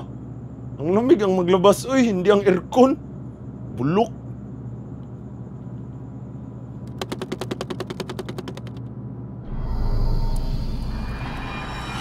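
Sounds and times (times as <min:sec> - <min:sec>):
low steady hum: 0:00.0 - 0:12.0
rapid rattle of sharp clicks: 0:06.8 - 0:08.9
music with deep low drone: 0:09.4 - 0:12.0.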